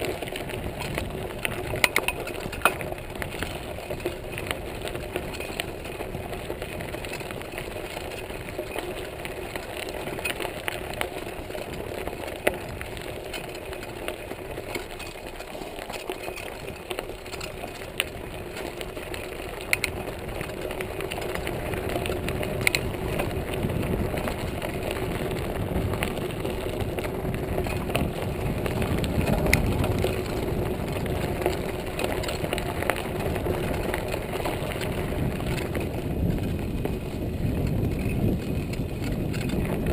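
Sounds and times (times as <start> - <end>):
bike clicks and rattles on bumps: 0.0 - 39.9
bike tyre and drivetrain noise: 0.0 - 39.9.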